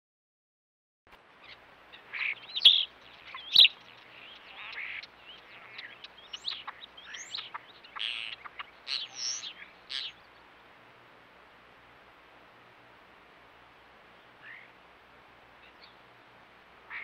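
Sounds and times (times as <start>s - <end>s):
starling singing: 1.4s - 10.4s.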